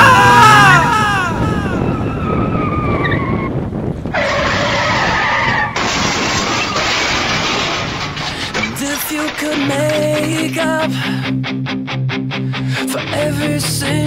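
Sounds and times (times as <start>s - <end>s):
steady rush of noise: 0.0s - 2.9s
car tyres skidding and squealing: 0.0s - 8.8s.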